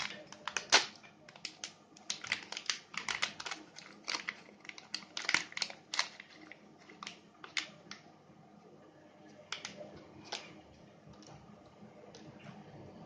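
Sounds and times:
plastic bag crinkling: 0.0s - 8.0s.

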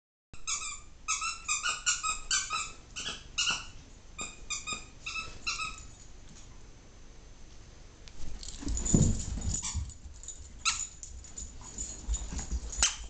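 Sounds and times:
squeaky dog toy squeaking: 0.4s - 5.9s.

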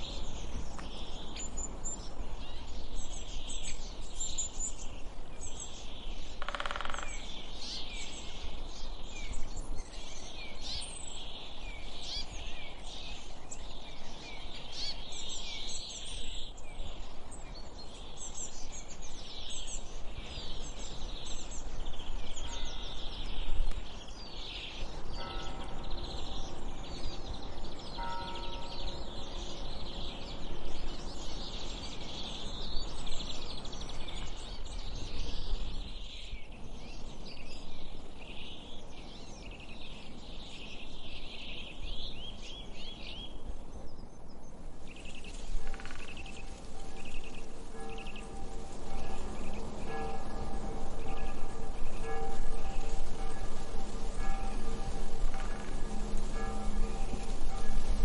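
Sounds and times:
songbirds chirping: 0.0s - 58.0s.

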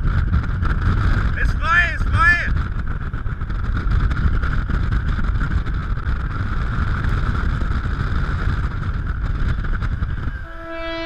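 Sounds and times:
car engine and tyre rumble: 0.0s - 11.0s
wind noise on microphone: 0.0s - 11.0s
guitar music: 10.4s - 11.0s.

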